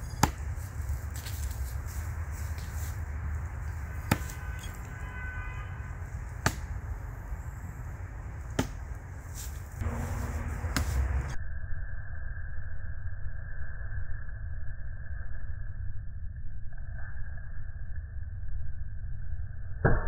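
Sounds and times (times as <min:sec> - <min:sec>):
knives thunking into tree trunk: 0:00.0 - 0:01.6, 0:03.7 - 0:05.0, 0:06.3 - 0:06.9, 0:08.4 - 0:11.3
low outdoor rumble: 0:00.0 - 0:11.4.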